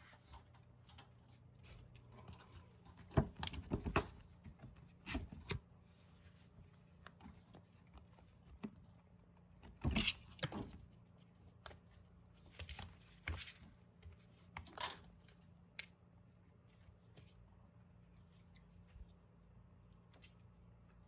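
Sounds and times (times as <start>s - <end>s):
kittens scampering on cardboard: 0.0s - 15.4s.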